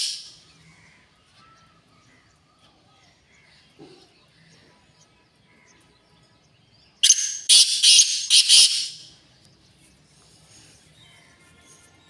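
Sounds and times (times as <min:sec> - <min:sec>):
francolin harsh call: 0:07.0 - 0:09.1.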